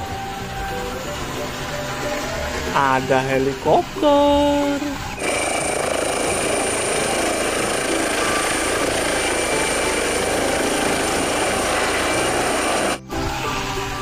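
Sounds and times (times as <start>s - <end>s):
high-pitched whine: 0.0s - 14.0s
helicopter rotor and turbine noise: 5.2s - 13.1s.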